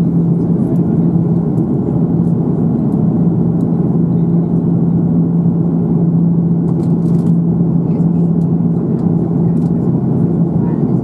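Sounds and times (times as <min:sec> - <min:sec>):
airplane cabin drone: 0:00.0 - 0:11.0
engine and airflow noise: 0:00.0 - 0:11.0.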